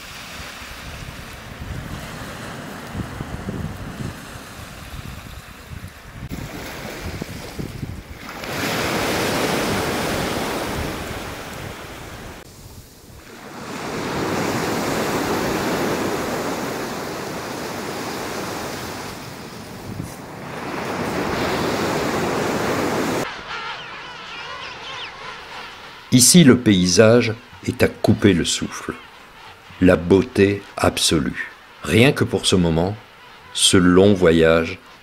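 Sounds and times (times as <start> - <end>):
surf breaking on shore: 0.0 - 23.5
wind buffeting microphone: 0.4 - 28.4.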